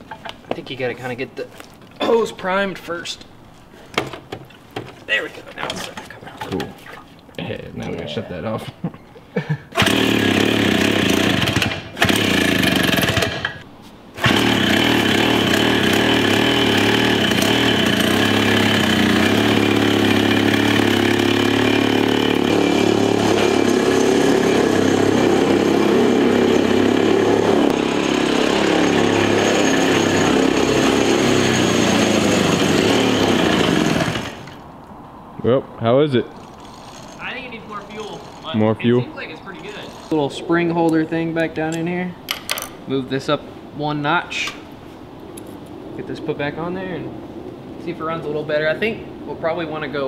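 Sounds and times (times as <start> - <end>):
two-stroke minibike engine running: 9.8 - 13.6, 14.2 - 34.6, 36.4 - 38.7.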